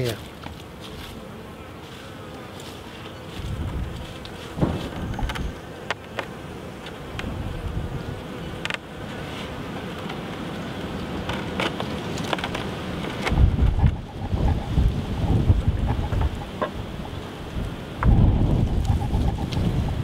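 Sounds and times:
bees buzzing: 0:00.0 - 0:20.0
low rumbles on microphone: 0:03.4 - 0:05.5, 0:13.3 - 0:16.4.

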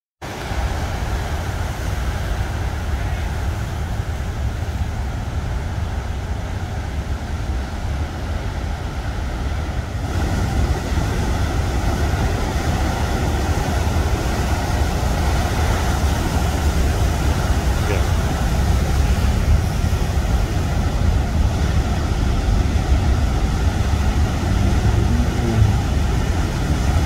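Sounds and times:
ocean surf breaking on rocks: 0:00.2 - 0:27.0.

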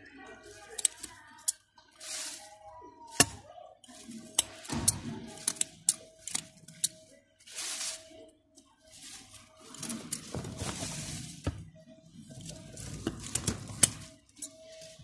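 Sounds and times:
leaves rustling: 0:00.4 - 0:03.4, 0:07.4 - 0:08.2, 0:08.8 - 0:11.5.

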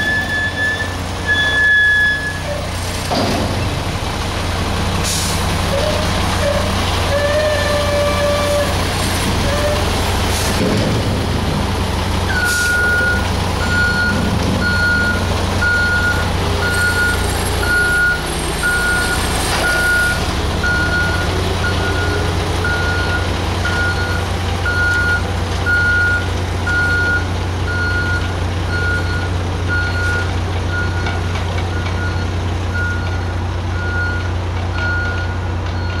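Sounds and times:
reversing alarm beeps: 0:00.0 - 0:02.5, 0:12.3 - 0:31.1, 0:31.7 - 0:36.0
diesel engine running: 0:00.0 - 0:36.0.

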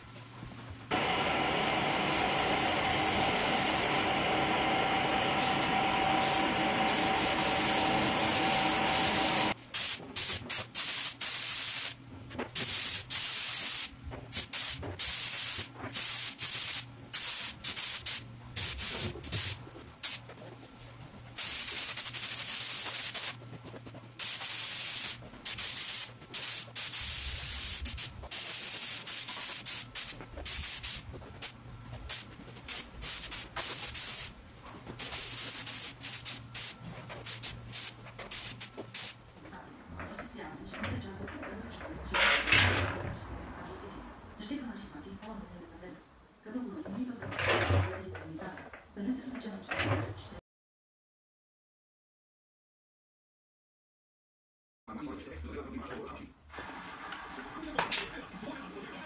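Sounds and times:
spray gun hissing: 0:00.9 - 0:12.0, 0:12.6 - 0:20.2, 0:21.3 - 0:39.3.

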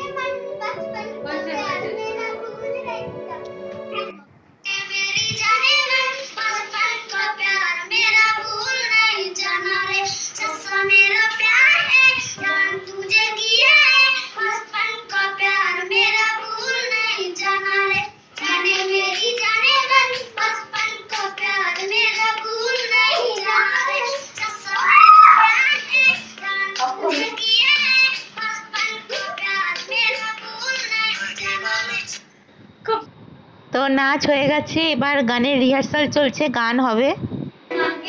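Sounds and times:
girl singing: 0:00.0 - 0:32.2, 0:37.7 - 0:38.0
hand claps: 0:29.8 - 0:30.0.

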